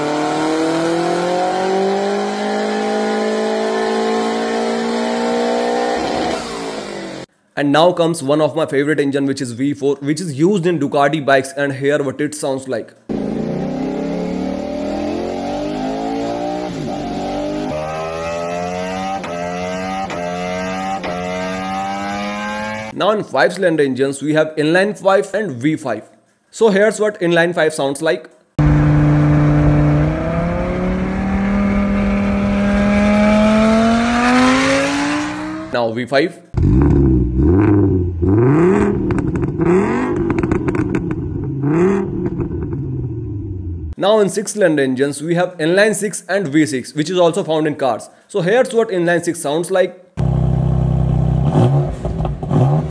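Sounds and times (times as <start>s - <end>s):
motorcycle engine accelerating: 0.0s - 7.3s, 13.1s - 22.9s, 28.6s - 35.8s, 36.6s - 44.0s, 50.2s - 52.9s.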